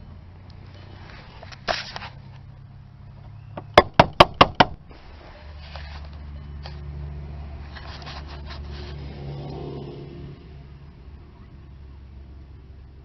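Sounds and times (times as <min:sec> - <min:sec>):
sharp knocks: 0:03.6 - 0:04.8.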